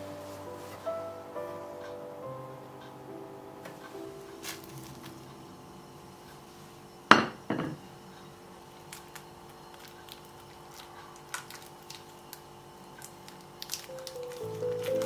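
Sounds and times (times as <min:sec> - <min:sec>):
plastic wrap crinkling: 0:04.3 - 0:05.3, 0:08.8 - 0:15.0.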